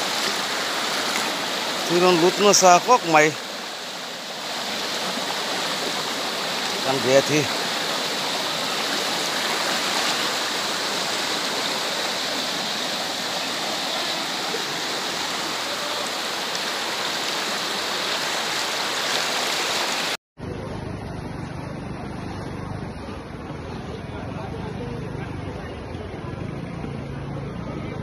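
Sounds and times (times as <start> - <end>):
floodwater rushing: 0.0 - 20.2.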